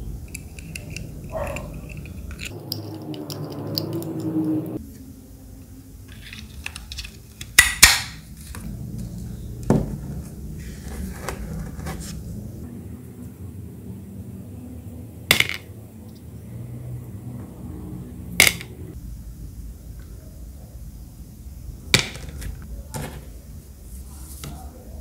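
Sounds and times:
plastic pieces snapping into place: 6.6s - 8.2s
creaking plastic scrape: 10.6s - 12.3s.

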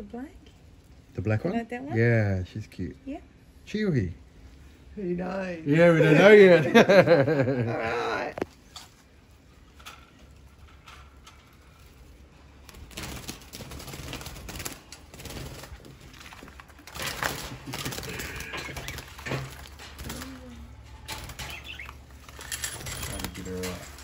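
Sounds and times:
cage wire rattling: 8.6s - 24.0s
birds flapping wings in cage: 10.6s - 24.0s.

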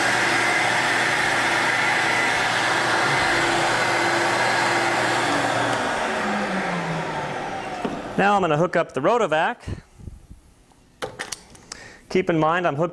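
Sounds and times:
vacuum motor whining: 0.0s - 8.4s.

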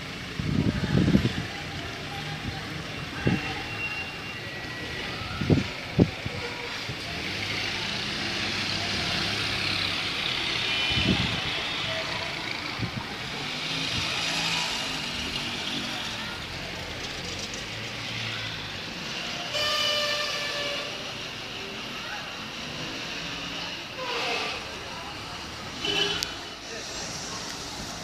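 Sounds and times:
voices in background: 0.0s - 28.0s
car engines running: 6.0s - 19.4s
car horn: 19.5s - 21.0s, 25.8s - 26.4s.

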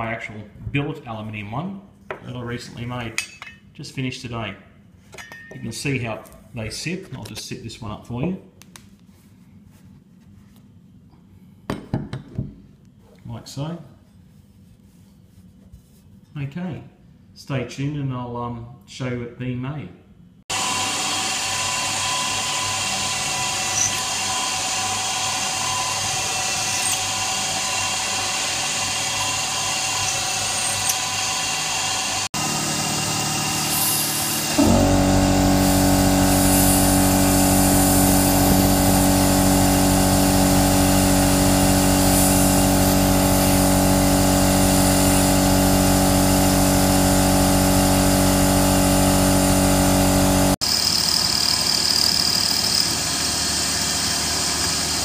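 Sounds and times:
milling machine cutting metal: 20.5s - 55.0s
steady machine hum: 27.2s - 50.7s.

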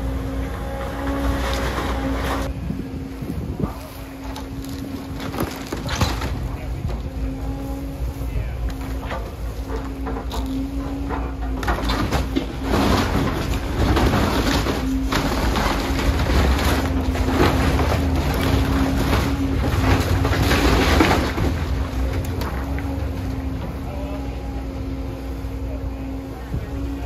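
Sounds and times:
diesel engine humming: 0.0s - 27.0s
timber splintering: 4.2s - 7.2s, 8.8s - 23.6s
debris crashing down: 9.0s - 23.7s.

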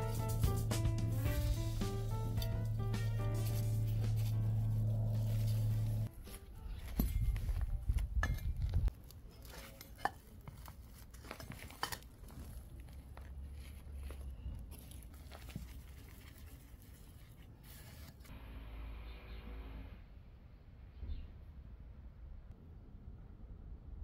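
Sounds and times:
trowel scraping soil: 0.0s - 18.3s.

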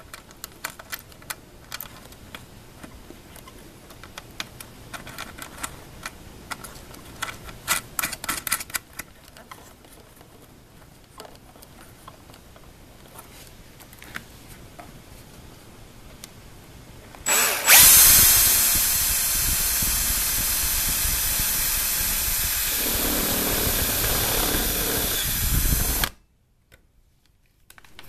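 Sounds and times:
cordless drill drilling metal: 17.3s - 26.2s.

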